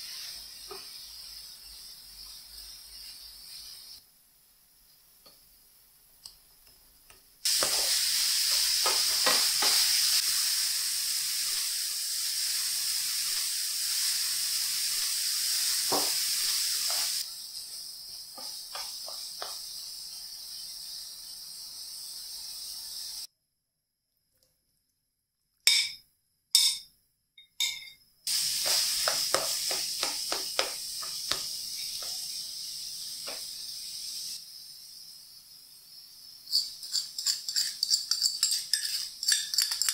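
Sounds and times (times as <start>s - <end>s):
apples sizzling in frying pan: 0.0s - 4.0s, 7.4s - 23.3s, 28.3s - 35.1s.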